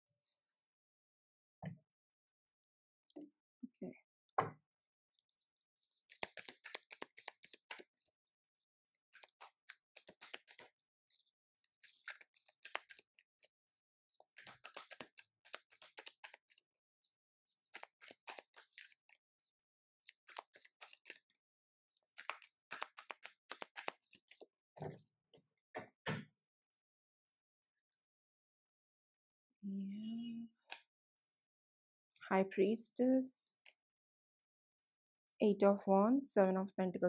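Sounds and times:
cards being shuffled: 5.8s - 8.1s, 9.2s - 13.2s, 14.2s - 16.6s, 17.5s - 19.1s, 20.0s - 21.2s, 22.0s - 24.5s.

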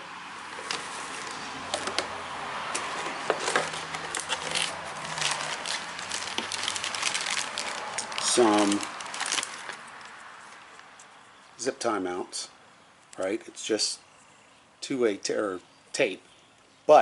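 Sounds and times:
paper and plastic rustling: 0.5s - 2.0s, 2.8s - 11.1s.

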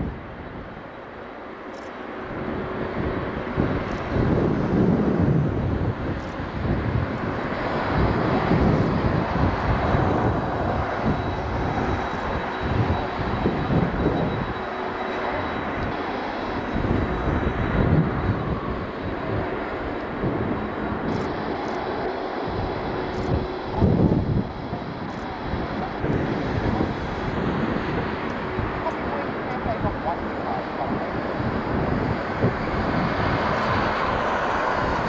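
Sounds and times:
jet engines rumbling: 0.0s - 35.0s.

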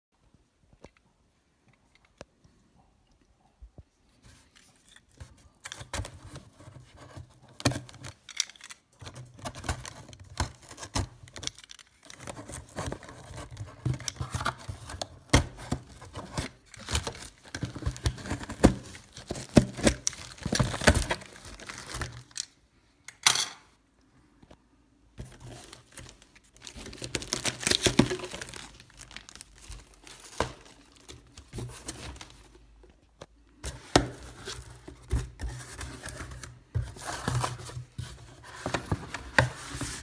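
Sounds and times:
plastic wrapping crinkling: 7.8s - 22.5s, 25.2s - 32.8s
packing tape tearing: 26.6s - 32.3s
cardboard scraping: 33.7s - 40.0s.

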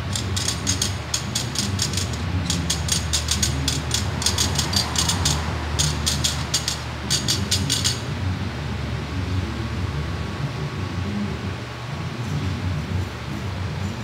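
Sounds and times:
metal tubes clicking and clattering: 0.0s - 8.0s
low machine hum: 0.0s - 14.0s.

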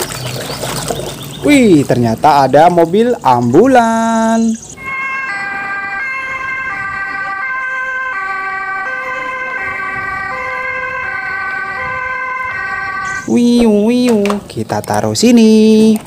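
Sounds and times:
ambulance two-tone siren: 4.6s - 13.6s.

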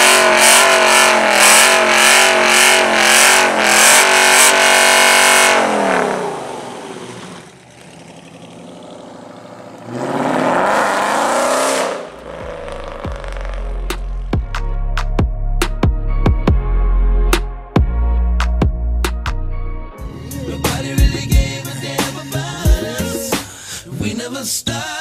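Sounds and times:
tires screeching: 0.0s - 14.4s
car engine revving: 0.0s - 14.7s.

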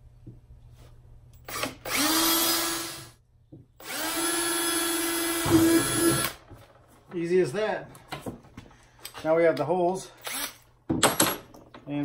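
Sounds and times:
cordless drill motor whining: 1.4s - 3.2s, 3.8s - 6.4s, 10.2s - 10.6s.

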